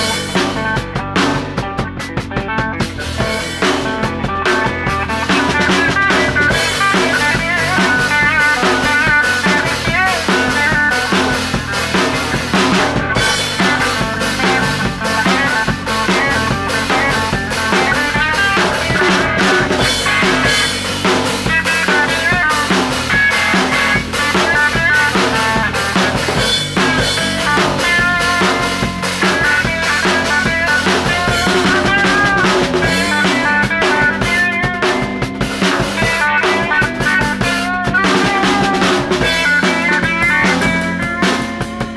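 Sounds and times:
bass guitar: 0:00.0 - 0:41.9
drum kit with cymbals: 0:00.0 - 0:41.9
electric guitar lead: 0:00.0 - 0:41.9
rock band jamming: 0:00.0 - 0:41.9.

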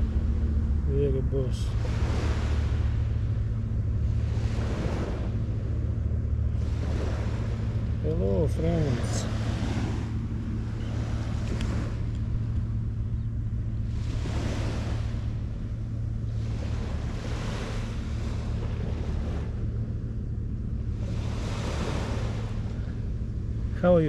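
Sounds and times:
small waves washing on sand: 0:00.0 - 0:12.6, 0:13.8 - 0:19.9, 0:20.8 - 0:23.0
steady low hum: 0:00.0 - 0:24.0.

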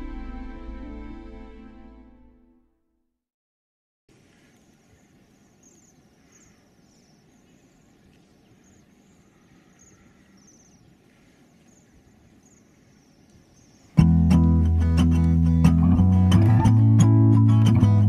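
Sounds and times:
songbirds chirping: 0:04.1 - 0:15.8.

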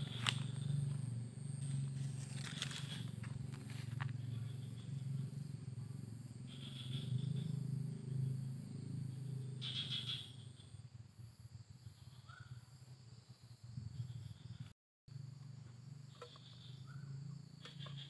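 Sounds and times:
high-pitched insect chirp: 0:00.0 - 0:18.0
rustling dry fronds: 0:01.6 - 0:04.1.

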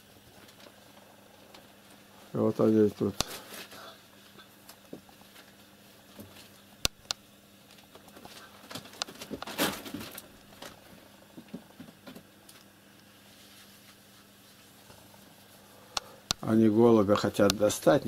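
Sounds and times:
cats scratching and rustling: 0:07.6 - 0:15.6.

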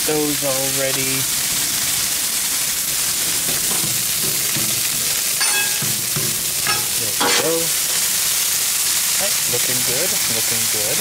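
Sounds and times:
food sizzling on griddle: 0:00.0 - 0:11.0
metal spatula scraping griddle: 0:03.3 - 0:08.1
sharp metallic clinks: 0:05.4 - 0:07.5.

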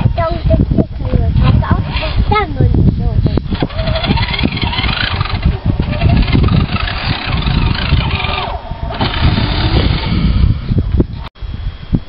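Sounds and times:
low uneven rumble: 0:00.0 - 0:12.0
small electric motors whining: 0:03.2 - 0:11.3.

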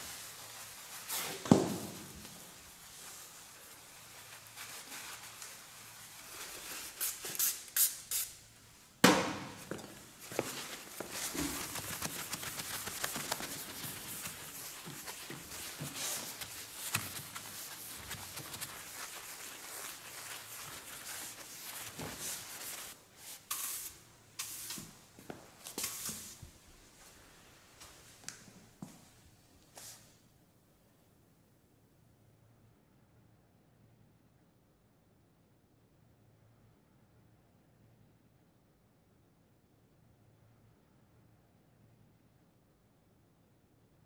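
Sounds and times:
broom sweeping tiled floor: 0:00.0 - 0:30.2
short hissing bursts: 0:06.6 - 0:08.5.

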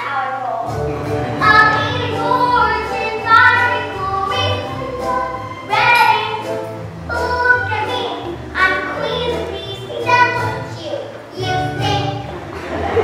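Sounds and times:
instrumental accompaniment: 0:00.6 - 0:13.0
children singing: 0:01.4 - 0:10.8.

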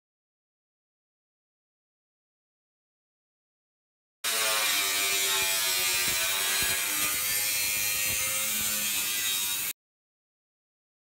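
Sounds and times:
angle grinder cutting metal: 0:04.2 - 0:09.8.

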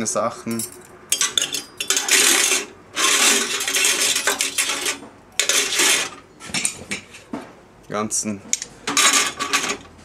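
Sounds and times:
metal utensils clattering on metal: 0:00.5 - 0:06.2, 0:08.9 - 0:09.9.

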